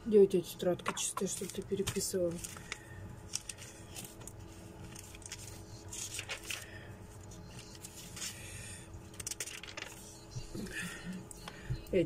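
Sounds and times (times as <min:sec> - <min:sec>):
faint steady hum: 0:00.0 - 0:12.0
paper rustling: 0:00.9 - 0:10.4.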